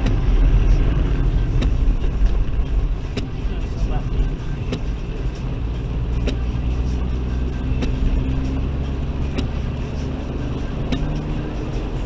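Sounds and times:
windscreen wiper knock: 0.0 - 0.4, 1.4 - 3.4, 4.6 - 4.9
engine and tyre rumble: 0.0 - 12.0.

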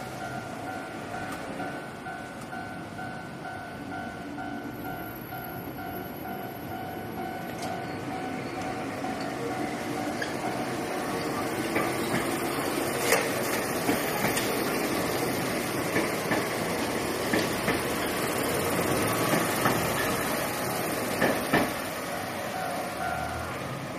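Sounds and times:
electric train rolling rumble: 0.0 - 23.9
wheel clacks on track: 11.4 - 20.3, 21.1 - 21.9.

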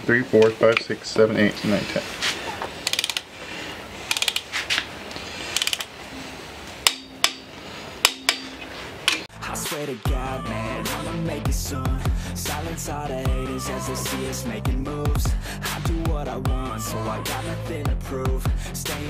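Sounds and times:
ratchet wrench clicking: 2.8 - 3.3, 4.1 - 4.5, 5.5 - 5.9
music: 9.3 - 19.0.

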